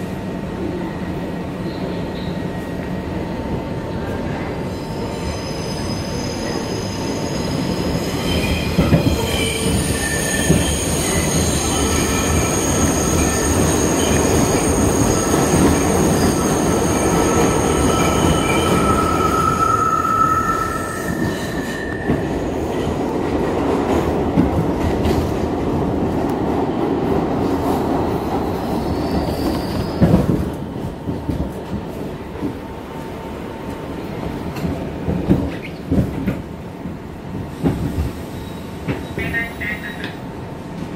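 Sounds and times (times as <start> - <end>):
train wheels rumbling on rails: 0.0 - 40.9.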